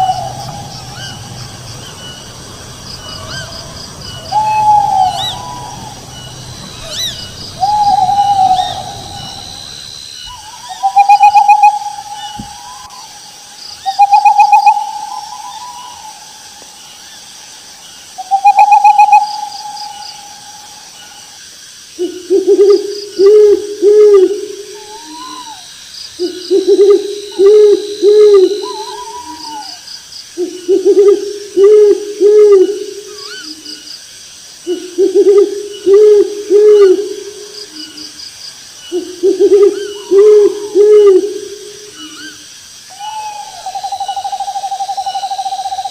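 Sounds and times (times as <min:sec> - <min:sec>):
owl hooting: 0:00.0 - 0:17.2, 0:18.2 - 0:21.4, 0:22.0 - 0:33.9, 0:38.8 - 0:45.9
drawn-out owl calls: 0:00.0 - 0:21.4, 0:22.0 - 0:33.9, 0:38.8 - 0:45.9
faint high chirping: 0:00.0 - 0:21.4, 0:24.7 - 0:31.7.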